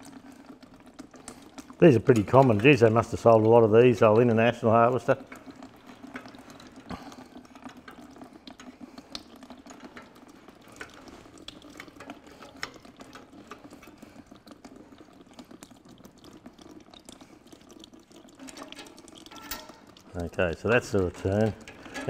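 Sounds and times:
faint trickle of liquid: 0:00.0 - 0:22.0.

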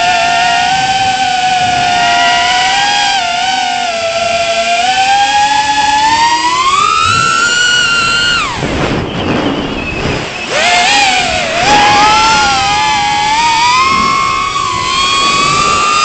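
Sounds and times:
quadcopter motors whining: 0:00.0 - 0:16.0
rushing air noise: 0:05.5 - 0:16.0.

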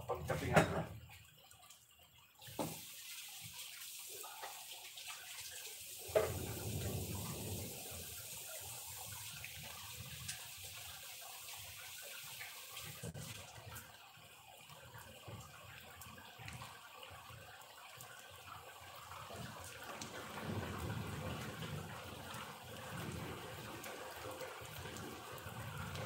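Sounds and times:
heavy rain on pavement: 0:05.4 - 0:10.8, 0:19.3 - 0:26.0.

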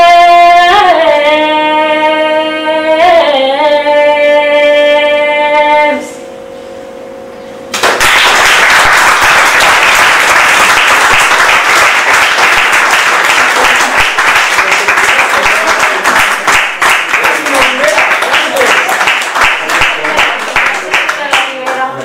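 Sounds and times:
audience applauding: 0:07.8 - 0:22.0.

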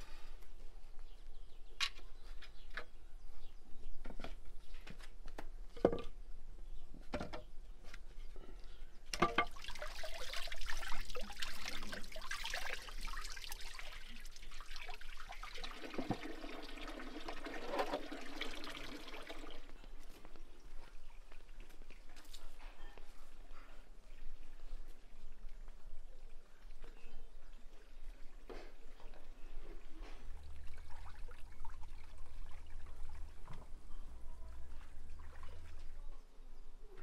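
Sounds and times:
water splashing into metal basin: 0:09.1 - 0:19.7
water gushing from a hose: 0:09.5 - 0:19.7.

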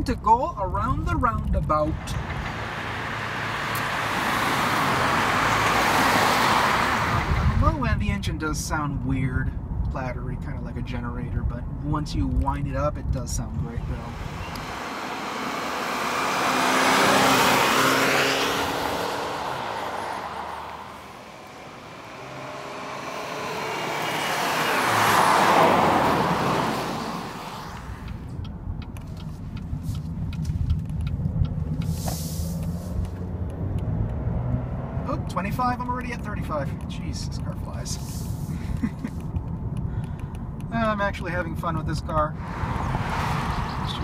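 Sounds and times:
engine and road hum inside car: 0:00.0 - 0:44.0
car driving past: 0:01.9 - 0:07.7, 0:13.7 - 0:28.4, 0:31.7 - 0:35.3, 0:42.4 - 0:44.0.

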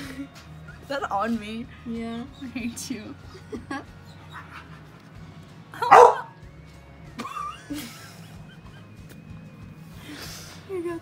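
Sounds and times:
faint background music: 0:00.0 - 0:11.0
dog barking: 0:05.8 - 0:06.4.

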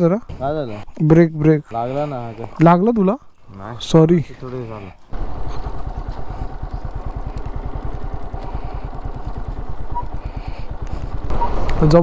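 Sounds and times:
motorcycle engine running: 0:03.6 - 0:12.0.

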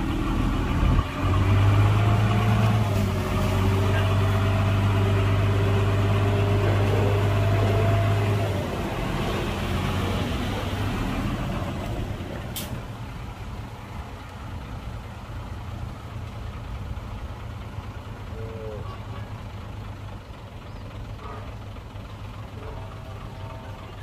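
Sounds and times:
heavy diesel engine running: 0:00.0 - 0:24.0.

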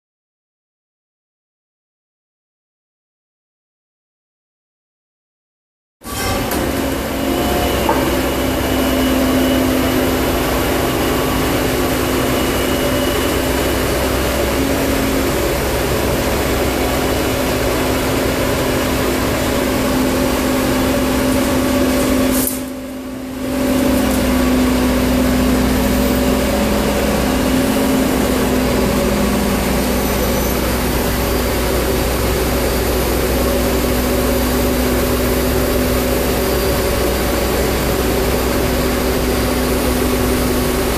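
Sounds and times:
crane engine humming under load: 0:06.1 - 0:40.9.

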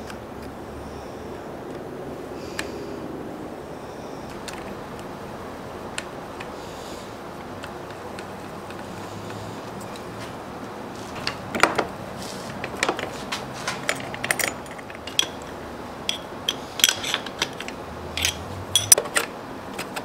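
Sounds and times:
low steady hum: 0:00.0 - 0:20.0
metal clinks and taps: 0:13.7 - 0:19.1.

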